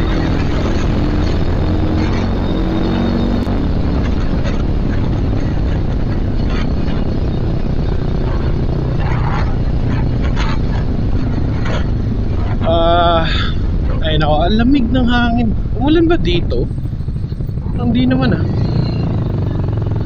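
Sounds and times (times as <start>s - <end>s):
motorcycle engine running: 0.0s - 20.0s
rush of riding noise: 0.0s - 20.0s.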